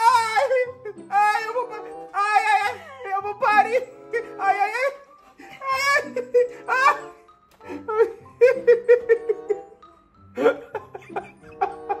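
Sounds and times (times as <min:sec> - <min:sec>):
person crying out in pain: 0:05.4 - 0:09.0
person laughing hard: 0:05.4 - 0:12.0.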